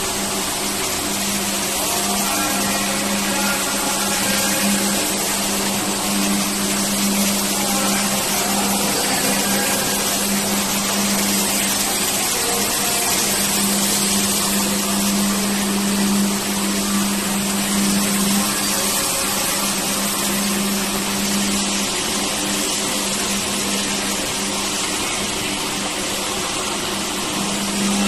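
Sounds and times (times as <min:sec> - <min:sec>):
floor scrubbing machine running: 0:00.0 - 0:28.0.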